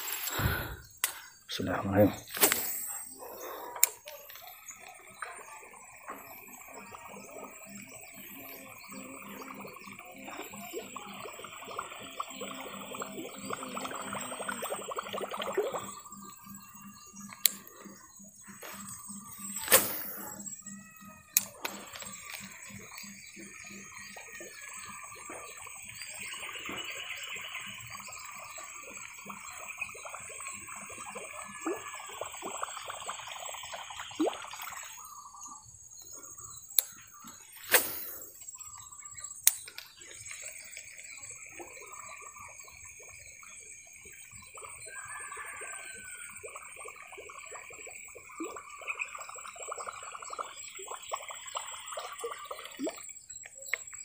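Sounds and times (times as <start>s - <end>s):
sharp clicks: 39.4s - 39.9s.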